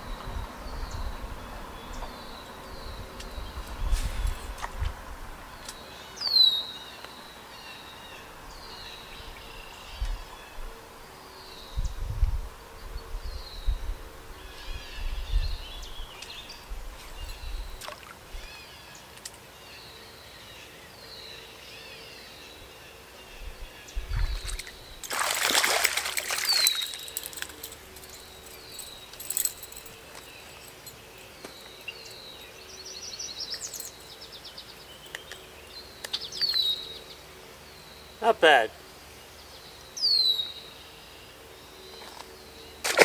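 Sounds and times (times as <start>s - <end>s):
fish splashing at water surface: 24.4s - 27.7s.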